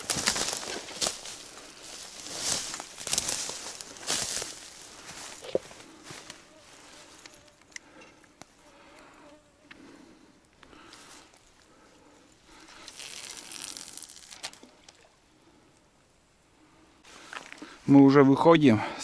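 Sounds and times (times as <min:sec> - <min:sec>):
flying insect buzzing: 0:06.2 - 0:10.9
faint clicks: 0:07.2 - 0:09.0
short rustling hiss: 0:12.5 - 0:14.7.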